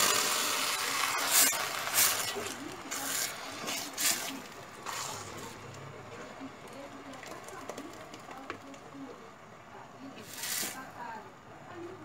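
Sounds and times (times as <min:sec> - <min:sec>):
spatula scraping pot: 0:00.0 - 0:05.6.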